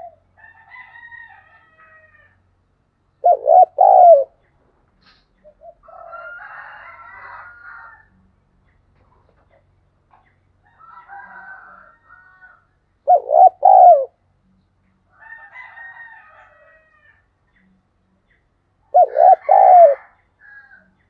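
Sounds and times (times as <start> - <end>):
dove cooing: 0.0 - 0.2, 3.2 - 4.4, 13.0 - 14.2, 18.9 - 20.2.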